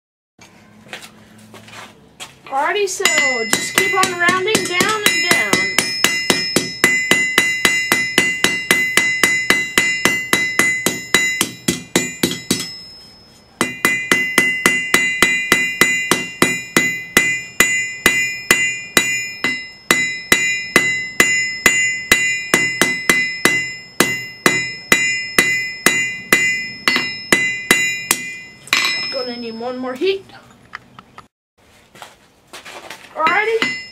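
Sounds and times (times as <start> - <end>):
anvil ringing: 2.9 - 29.9, 33.2 - 33.9
hammer striking hot steel: 3.0 - 29.3, 33.3 - 33.9.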